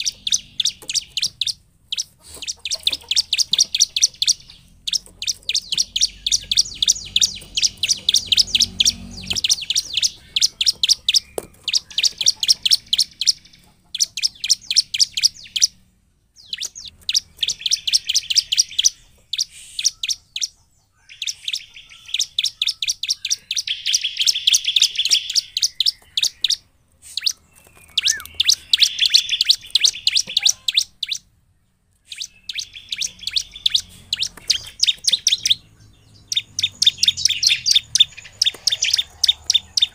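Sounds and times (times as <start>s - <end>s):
bird singing sharp chirps: 0.0s - 31.3s, 32.0s - 39.9s.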